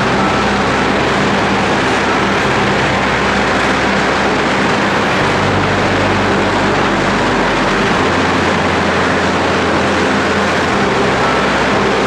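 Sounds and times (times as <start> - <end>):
electric arc furnace crackling hiss: 0.0 - 12.0
low electrical hum: 0.0 - 12.0.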